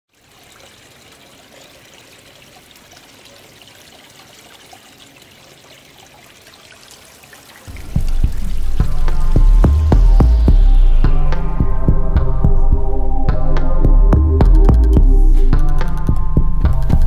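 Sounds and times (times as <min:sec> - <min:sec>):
water trickling: 0:00.1 - 0:10.8
music with heavy bass beat: 0:07.7 - 0:17.0.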